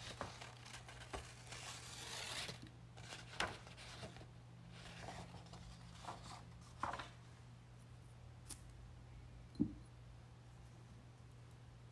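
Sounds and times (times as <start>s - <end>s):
paper sliding and rustling: 0.0s - 7.2s.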